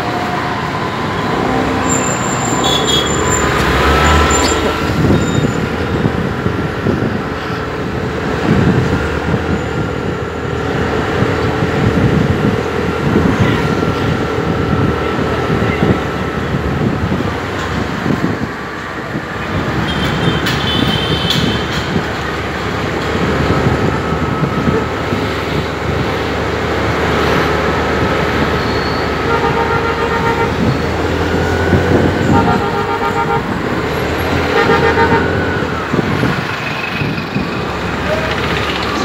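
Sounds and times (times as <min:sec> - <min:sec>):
vehicle horns: 0:01.2 - 0:05.6, 0:19.7 - 0:22.0, 0:28.6 - 0:35.6.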